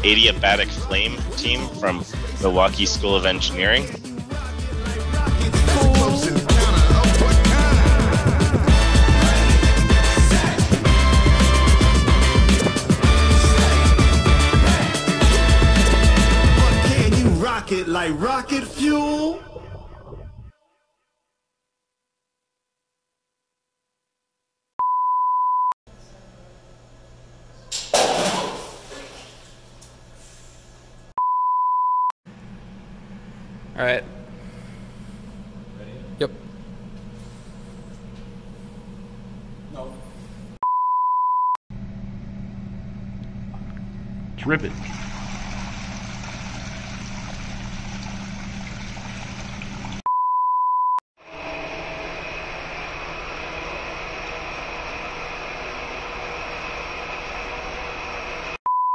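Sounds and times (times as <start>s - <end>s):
robot crashing onto tile floor: 28.0s - 28.8s
high beep: 40.6s - 41.6s, 50.1s - 51.0s.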